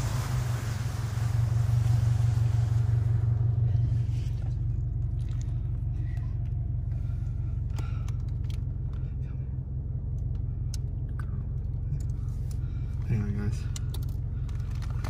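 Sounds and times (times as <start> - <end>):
rush of outside air: 0.0 - 4.7
car engine rumbling: 0.0 - 15.0.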